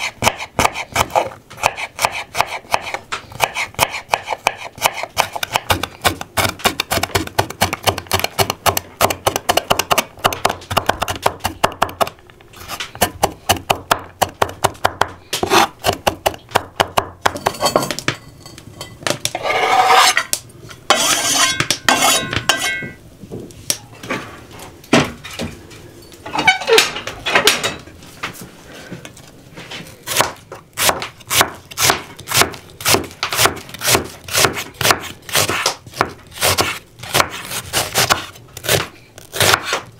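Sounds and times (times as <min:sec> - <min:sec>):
knife chopping on wooden board: 0:00.2 - 0:12.1, 0:30.1 - 0:39.9.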